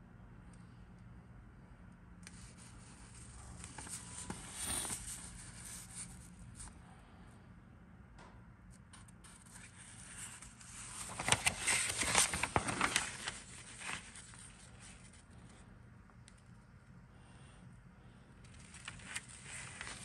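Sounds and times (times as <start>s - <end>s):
paper sheet rustling: 2.3s - 6.2s, 9.3s - 15.3s, 18.5s - 20.0s.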